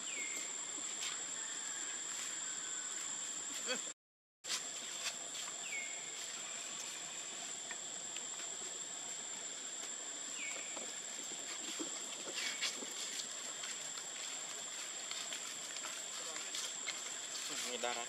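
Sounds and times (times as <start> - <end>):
high-pitched insect drone: 4.5 - 18.0.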